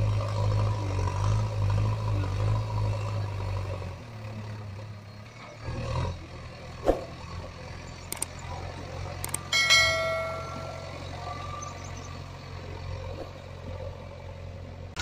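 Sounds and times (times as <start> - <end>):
low engine drone: 6.8 - 15.0
sharp click: 8.1 - 8.4, 9.2 - 9.5.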